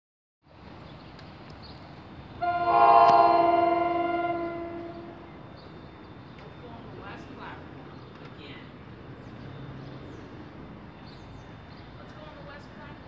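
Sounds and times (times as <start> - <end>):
locomotive horn chord blast: 2.4 - 5.4.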